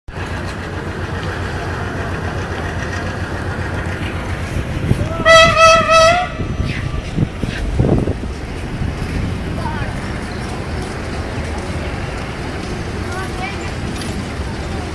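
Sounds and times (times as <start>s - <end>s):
train rumbling: 0.1s - 14.9s
locomotive horn: 5.0s - 7.1s.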